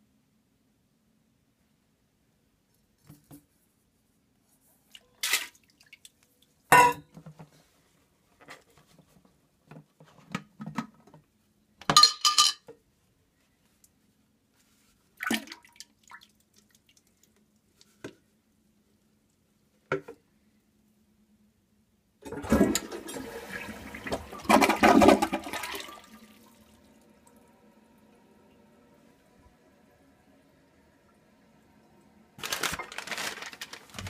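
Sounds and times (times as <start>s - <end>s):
wet drips and splashes: 4.9s - 6.3s, 15.2s - 17.4s.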